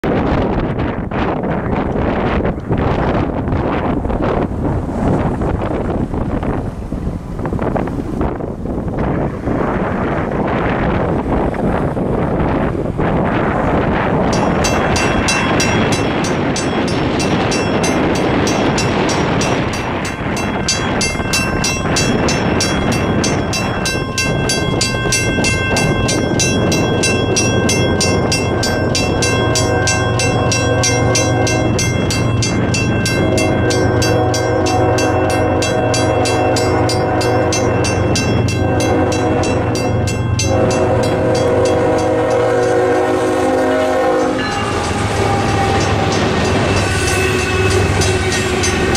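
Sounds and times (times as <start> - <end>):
diesel locomotive engine rumbling: 0.0 - 48.9
crossing bell ringing: 14.1 - 48.9
train horn: 27.2 - 48.9.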